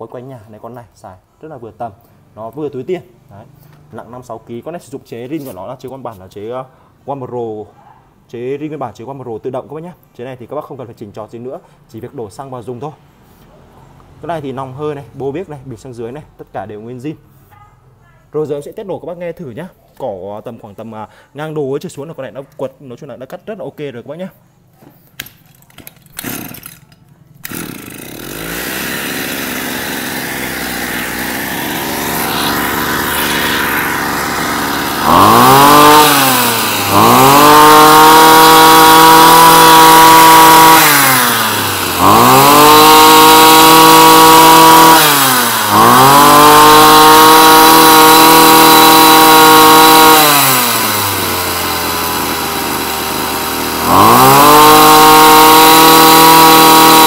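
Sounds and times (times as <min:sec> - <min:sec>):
brush cutter engine revving: 0:26.1 - 0:57.0.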